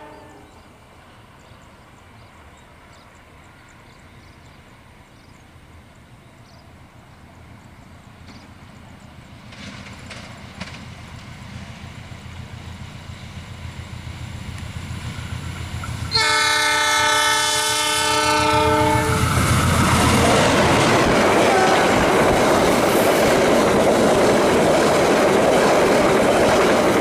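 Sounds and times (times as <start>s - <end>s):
locomotive air horn: 0.0s - 0.6s, 16.1s - 19.5s, 21.4s - 22.0s
train rumbling: 0.0s - 27.0s
train wheels clattering on rails: 7.6s - 16.3s, 19.1s - 27.0s.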